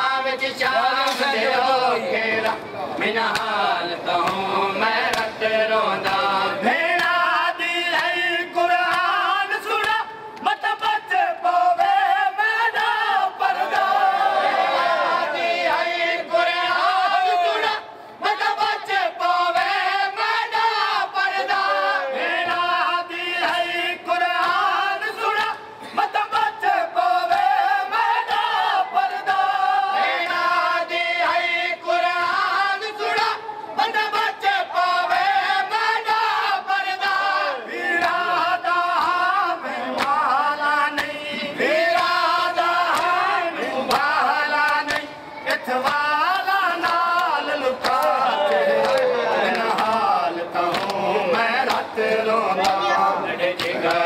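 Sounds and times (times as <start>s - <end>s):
men chanting together: 0.0s - 54.0s
hands slapping chests: 6.0s - 6.3s, 42.9s - 43.2s, 44.7s - 46.0s, 46.8s - 50.1s, 50.7s - 51.0s, 51.6s - 51.9s, 53.5s - 54.0s.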